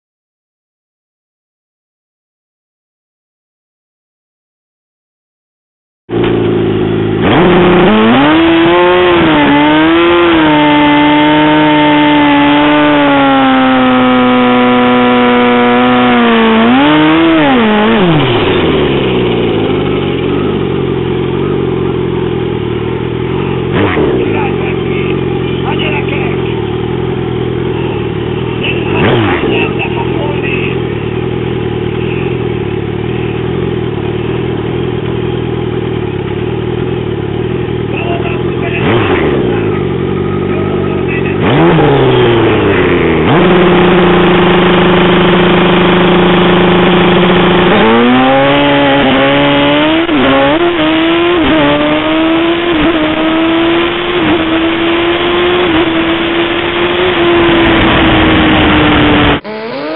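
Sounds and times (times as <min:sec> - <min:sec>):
motorcycle accelerating: 0:06.1 - 0:59.9
motorcycle engine revving: 0:06.1 - 0:59.9.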